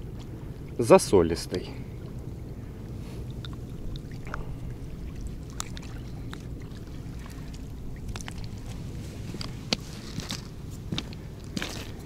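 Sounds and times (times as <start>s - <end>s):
low rumble: 1.7s - 12.0s
hands handling a fish: 5.5s - 12.0s.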